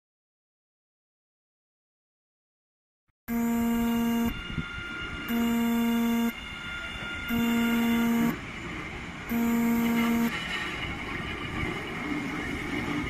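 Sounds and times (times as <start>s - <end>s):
train horn blasts: 3.3s - 8.6s, 9.3s - 10.5s
train running noise: 4.3s - 13.0s.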